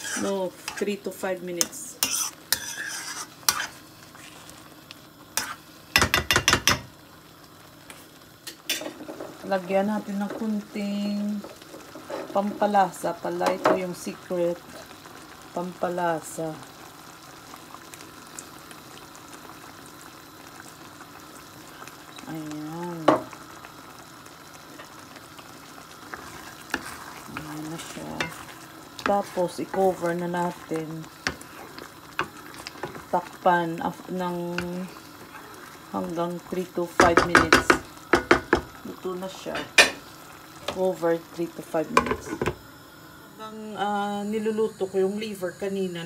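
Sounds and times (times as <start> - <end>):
spoon scraping a frying pan: 0.0 - 1.0, 1.6 - 4.6, 5.4 - 6.8, 8.5 - 9.4, 11.4 - 12.5, 26.1 - 33.1
faint sizzle: 0.0 - 46.0
spoon knocking against pan: 6.0 - 6.9, 37.0 - 38.7.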